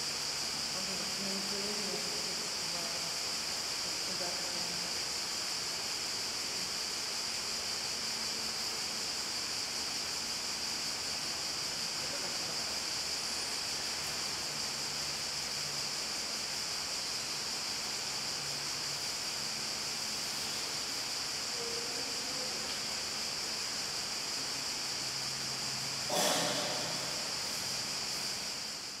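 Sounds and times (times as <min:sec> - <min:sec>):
steady background hiss: 0:00.0 - 0:29.0
sudden loud noise: 0:26.1 - 0:27.5.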